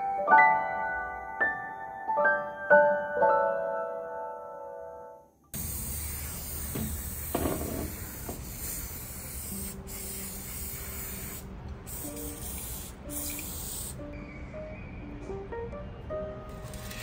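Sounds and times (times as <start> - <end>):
spray bottle misting oil: 5.6 - 14.0.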